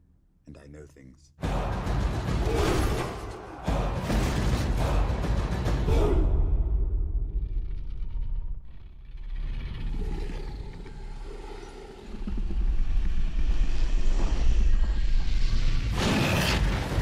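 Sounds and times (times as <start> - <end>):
deep rumbling drone: 6.3 - 16.0.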